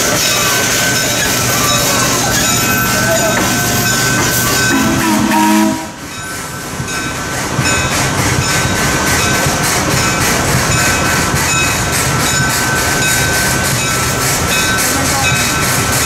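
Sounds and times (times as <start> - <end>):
steam locomotive hissing: 0.0 - 16.0
train wheels clattering on rails: 0.0 - 16.0
steam whistle blast: 4.3 - 6.1.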